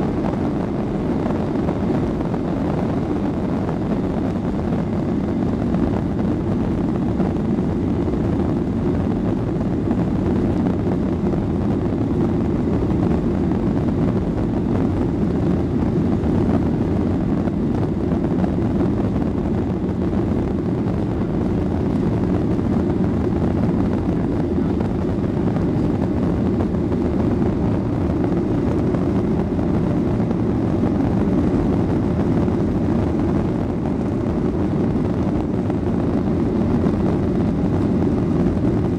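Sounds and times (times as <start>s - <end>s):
jet engine drone in cabin: 0.0s - 38.9s.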